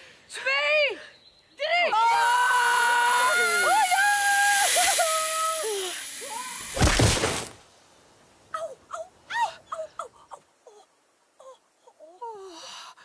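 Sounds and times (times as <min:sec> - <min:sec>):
loud crash: 0:04.5 - 0:07.6.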